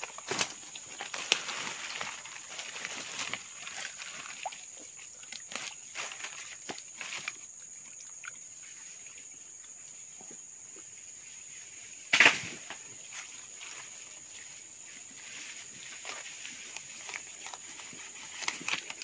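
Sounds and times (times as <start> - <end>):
hands rustling through wet leaves: 0.0 - 8.0, 12.7 - 19.0.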